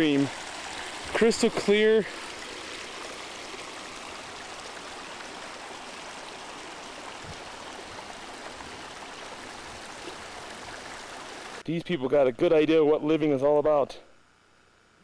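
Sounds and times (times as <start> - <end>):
stream rushing over rocks: 0.0 - 11.6.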